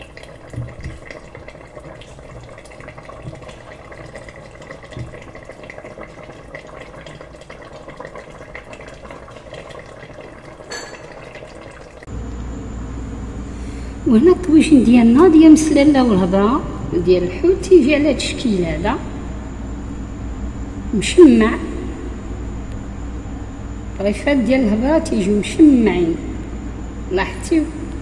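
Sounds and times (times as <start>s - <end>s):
sauce bubbling in a pot: 0.0s - 12.1s.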